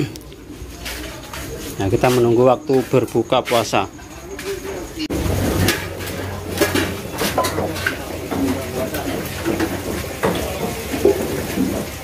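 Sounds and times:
men talking indistinctly: 1.7s - 5.0s
pots and utensils knocking on table: 4.4s - 12.0s.

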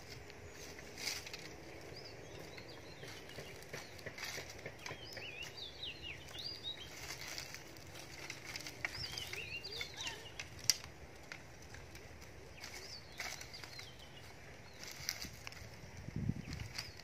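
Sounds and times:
dry sticks clattering and crackling: 0.0s - 17.0s
small birds chirping: 0.0s - 17.0s
stick snapping: 10.4s - 13.6s.

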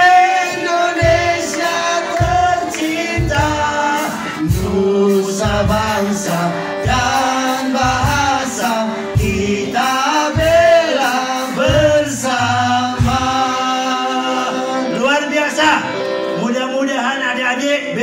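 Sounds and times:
low beat: 0.0s - 14.2s
group of voices singing: 0.0s - 15.2s
electric guitar: 0.0s - 16.5s.

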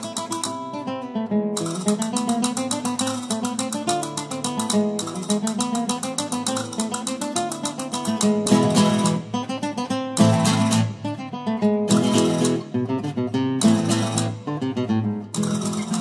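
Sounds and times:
flamenco acoustic guitar strumming: 0.0s - 16.0s.

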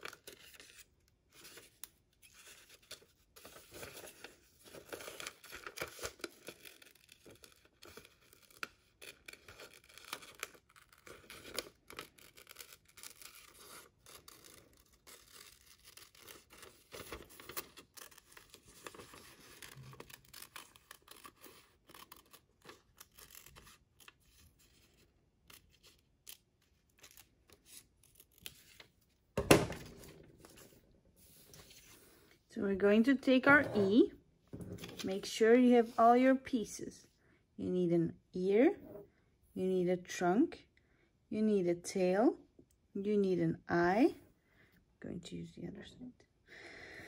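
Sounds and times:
paper rustling: 0.0s - 25.9s, 27.0s - 32.4s, 33.5s - 36.0s
scissors snipping newspaper: 4.9s - 23.8s.

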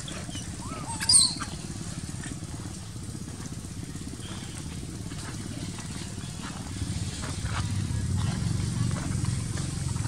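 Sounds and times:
macaque squealing: 0.0s - 1.6s
low engine rumble: 0.0s - 10.0s.

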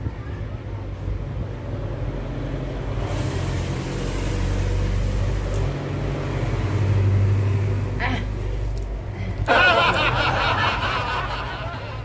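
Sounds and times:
rushing hiss: 3.0s - 5.7s.

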